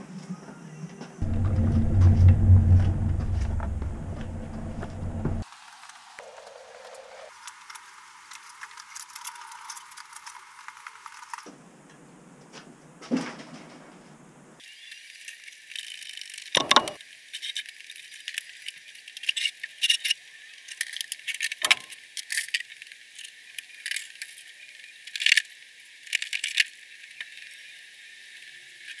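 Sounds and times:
heavy knocks: 1.2 - 5.4.

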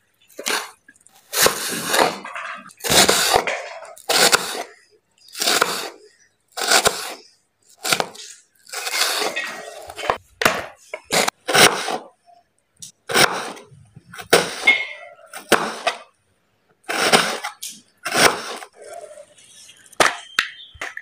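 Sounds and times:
knife crunching through pumpkin: 0.3 - 12.0.

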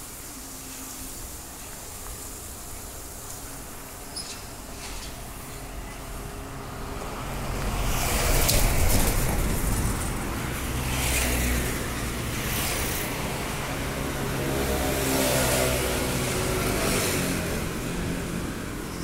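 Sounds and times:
street traffic: 0.0 - 19.0
vehicle passing close by: 6.6 - 18.8.

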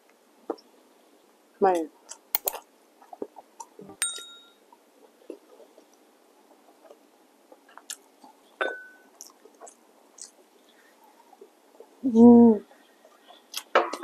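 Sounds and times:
ceramic tableware clinking: 3.9 - 4.6, 8.6 - 9.0
eating noises: 7.6 - 8.5, 9.1 - 12.0, 12.9 - 14.0.

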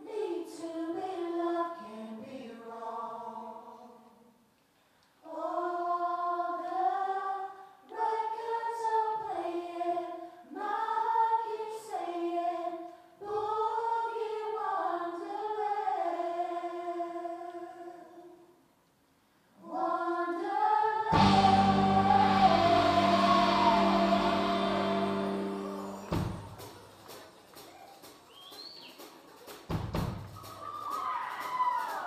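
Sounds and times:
vocal group singing in harmony: 0.0 - 4.2, 5.2 - 18.5, 19.6 - 26.7.

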